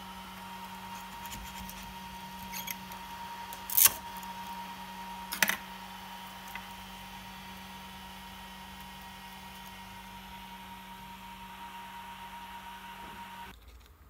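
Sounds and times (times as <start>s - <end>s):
electrical hum: 0.0s - 13.6s
scraper scraping glass: 0.9s - 3.0s.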